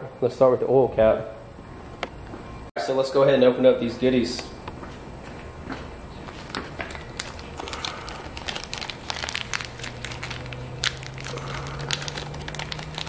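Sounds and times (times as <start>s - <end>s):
plastic bags crinkling: 6.3s - 13.0s.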